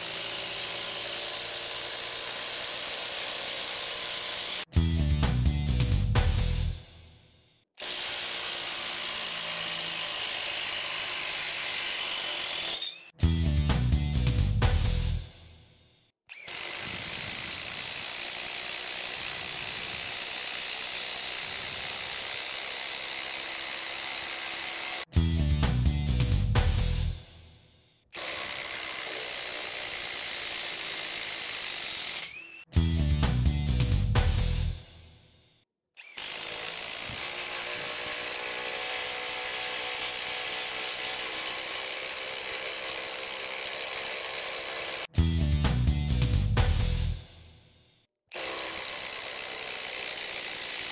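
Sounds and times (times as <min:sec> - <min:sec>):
music: 0:04.7 - 0:07.6, 0:13.2 - 0:16.1, 0:25.1 - 0:28.0, 0:32.7 - 0:35.6, 0:45.2 - 0:48.0
impact driver hammering: 0:07.8 - 0:13.1, 0:36.0 - 0:45.1.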